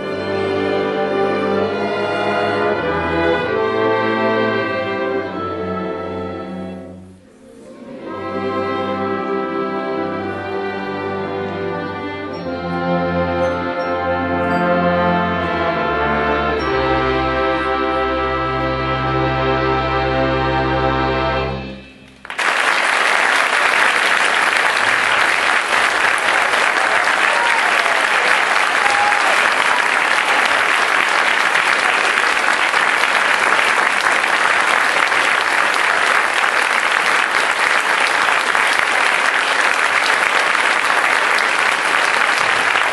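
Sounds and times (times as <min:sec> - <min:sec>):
audience applause: 0:22.1 - 0:42.9.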